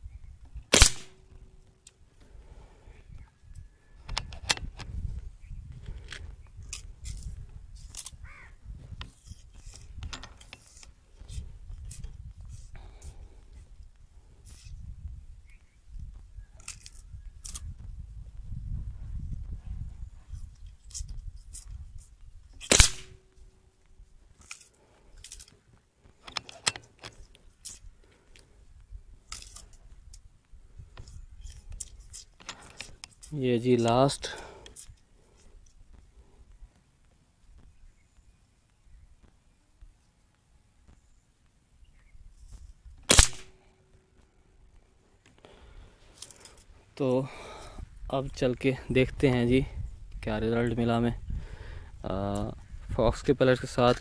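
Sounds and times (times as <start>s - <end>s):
air rifle action clicks: 0.6s - 2.3s, 4.0s - 5.0s, 5.8s - 8.2s, 9.0s - 13.9s, 16.6s - 17.7s, 20.6s - 21.8s, 22.5s - 23.3s, 24.3s - 28.6s, 29.2s - 30.3s, 30.9s - 35.8s, 43.0s - 43.6s
air rifle shot crack: 0.7s - 1.2s, 22.6s - 23.2s, 43.1s - 43.6s.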